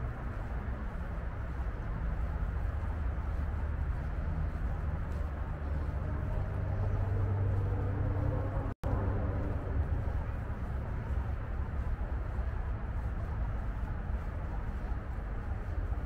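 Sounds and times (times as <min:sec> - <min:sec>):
distant traffic rumble: 0:00.0 - 0:16.0
engine pitch climbing: 0:05.9 - 0:09.9.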